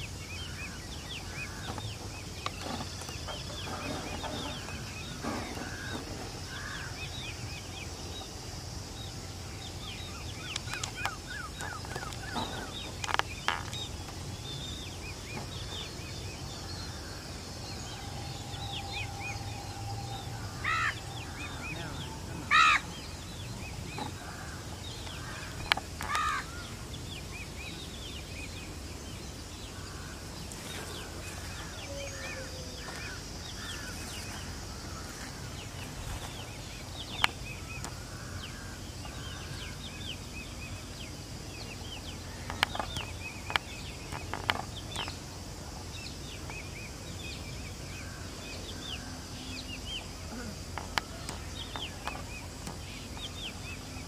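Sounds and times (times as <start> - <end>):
steady low rumble: 0.0 - 31.9
small birds chirping: 0.0 - 54.0
crow cawing: 5.6 - 7.0, 18.8 - 23.0, 24.2 - 26.7, 31.6 - 34.0.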